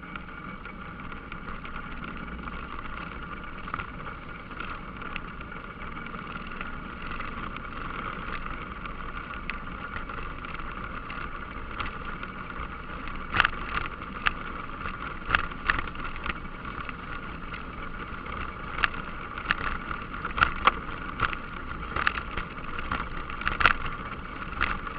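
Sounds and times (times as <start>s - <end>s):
atv engine running: 0.0s - 24.9s
sharp clacks and knocks: 0.1s - 24.9s.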